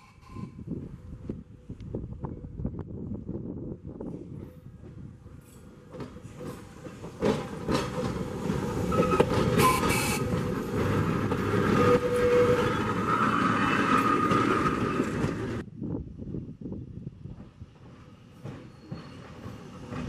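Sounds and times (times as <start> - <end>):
trolley car rolling past: 4.0 - 15.6, 17.3 - 20.0
wheels clicking over rail joints: 4.0 - 15.6, 17.4 - 20.0.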